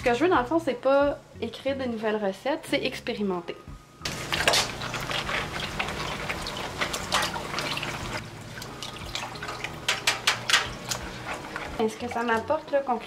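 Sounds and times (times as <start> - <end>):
water sloshing in a metal pan: 4.1 - 13.0.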